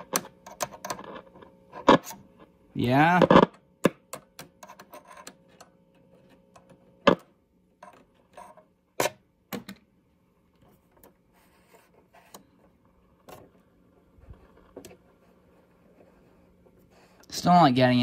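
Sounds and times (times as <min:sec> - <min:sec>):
radio speaker humming: 0:00.0 - 0:03.9
radio crackles and pops: 0:00.0 - 0:04.1, 0:06.2 - 0:07.4.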